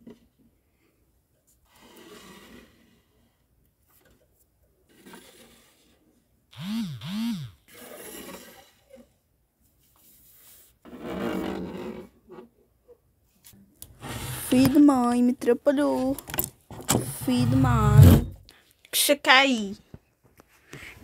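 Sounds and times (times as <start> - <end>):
rustling and scraping: 15.8 - 18.5.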